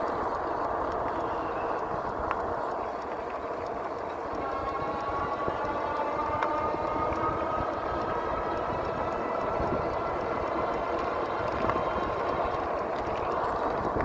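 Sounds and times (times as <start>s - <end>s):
tyre noise on pavement: 0.0s - 14.0s
wind rumble on microphone: 0.0s - 14.0s
electric motor whine: 4.2s - 14.0s.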